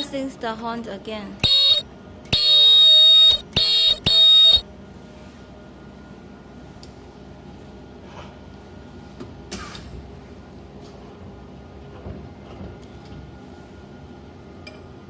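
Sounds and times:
shrill ultrasonic welder horn bursts: 1.4 - 4.6.

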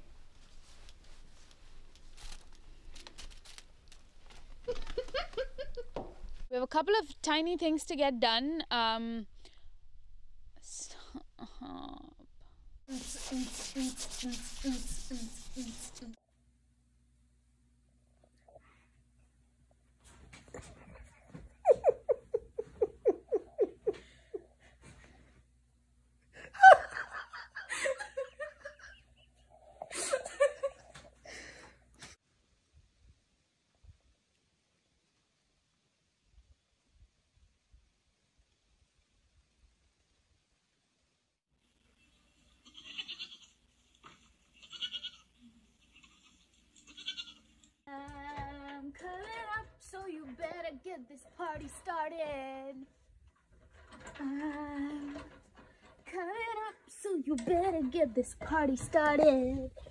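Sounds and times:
person laughing: 4.6 - 6.0, 11.4 - 12.2, 21.6 - 24.6, 26.4 - 31.0
goats bleating: 42.6 - 43.6, 44.6 - 47.5.

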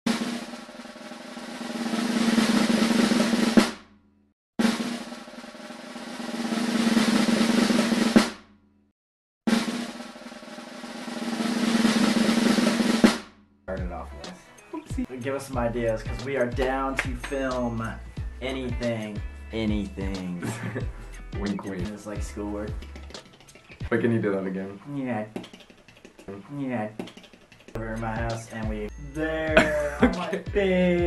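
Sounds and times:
drum roll with sharp final hit: 0.1 - 3.8, 4.6 - 8.4, 9.5 - 14.0.

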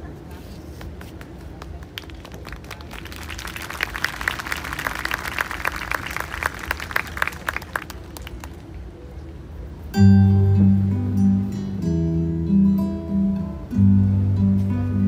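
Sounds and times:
audience applauding: 1.3 - 8.8.

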